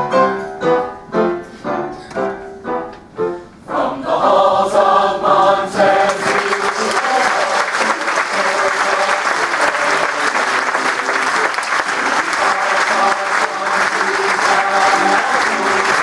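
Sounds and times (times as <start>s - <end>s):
piano: 0.0s - 16.0s
choir singing: 3.6s - 16.0s
audience applauding: 5.9s - 16.0s.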